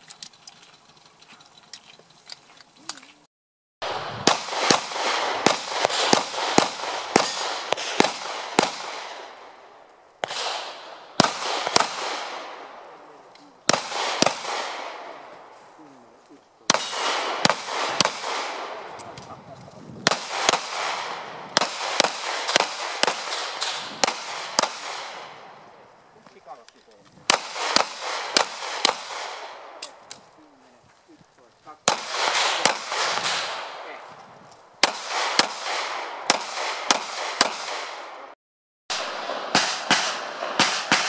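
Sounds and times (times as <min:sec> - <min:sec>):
pistol shots echoing: 0:03.8 - 0:13.0, 0:13.6 - 0:15.4, 0:16.7 - 0:19.1, 0:20.0 - 0:25.8, 0:27.3 - 0:30.1, 0:31.8 - 0:34.0, 0:34.8 - 0:38.3, 0:38.9 - 0:41.0.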